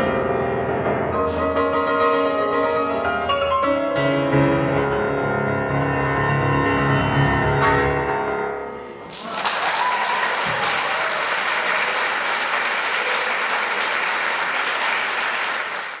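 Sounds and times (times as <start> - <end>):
audience applause: 9.1 - 16.0.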